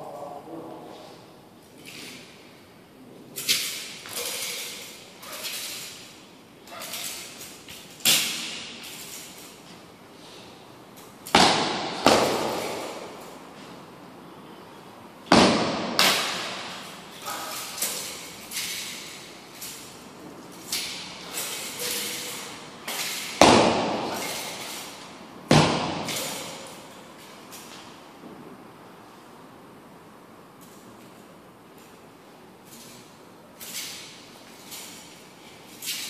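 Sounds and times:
sharp echoing thuds: 11.3s - 13.1s.

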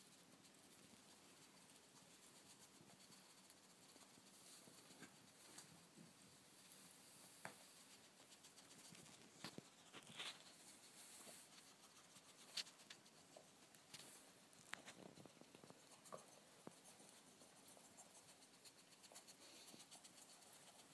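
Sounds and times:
claws scratching on carpet: 6.7s - 20.9s.

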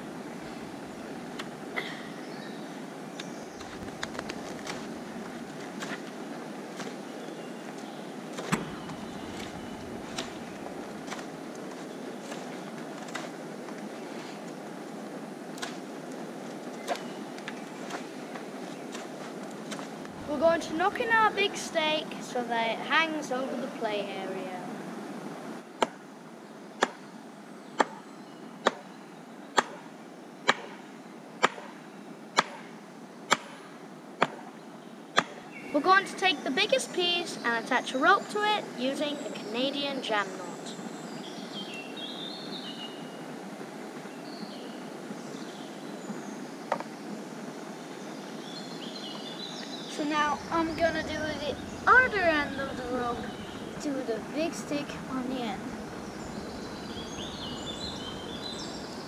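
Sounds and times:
low background hiss: 0.0s - 59.0s
wooden mallet knocking on stake: 31.4s - 31.7s.

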